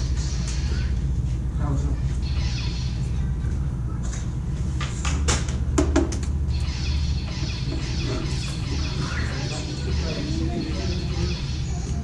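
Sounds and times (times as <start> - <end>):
lightsabers humming: 0.0 - 1.2, 1.8 - 3.6, 6.4 - 12.0.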